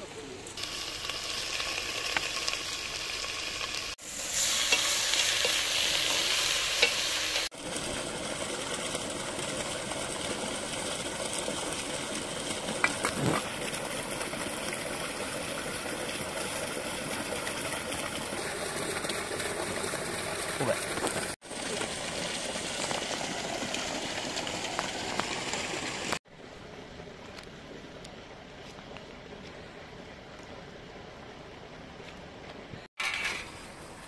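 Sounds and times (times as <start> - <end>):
meat and onion sizzling in a pot: 0.5 - 26.2.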